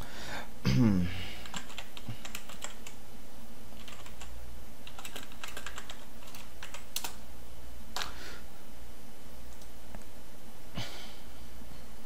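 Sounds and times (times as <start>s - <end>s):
steady low hum: 0.0s - 12.0s
keyboard keys clicking: 1.4s - 3.0s, 3.8s - 7.2s.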